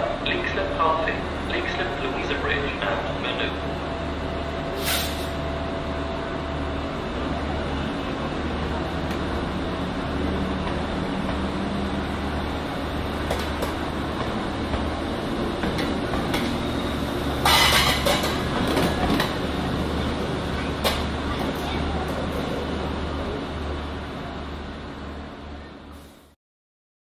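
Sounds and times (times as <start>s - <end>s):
traffic noise: 0.0s - 26.3s
low engine hum of large vehicles: 0.0s - 26.4s
loud burst of hiss: 4.8s - 5.3s.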